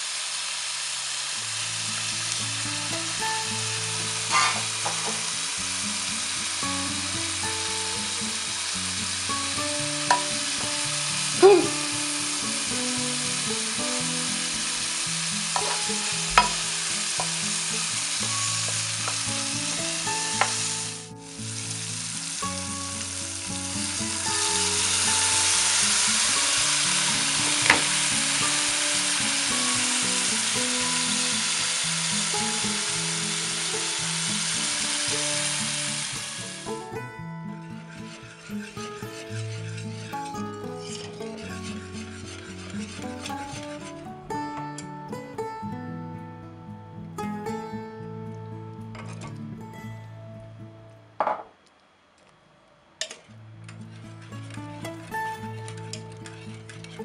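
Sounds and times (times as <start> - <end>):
food sizzling in a pan: 0.0 - 45.5, 53.0 - 57.0
utensil clicking against pan: 15.5 - 16.6.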